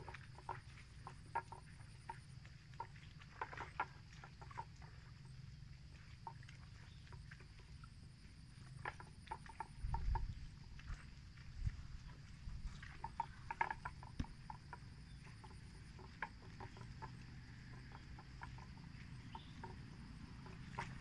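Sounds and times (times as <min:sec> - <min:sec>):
small clicks and chirps: 0:08.6 - 0:21.0.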